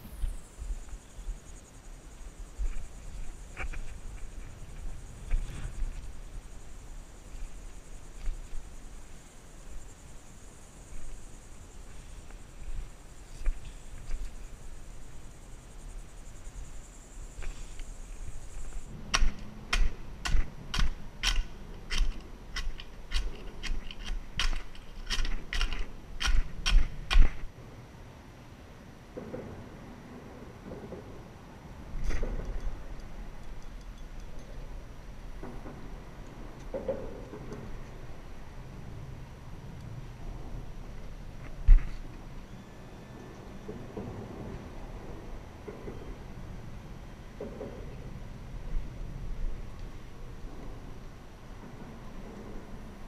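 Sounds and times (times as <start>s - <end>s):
high-pitched insect trill: 0.0s - 18.9s.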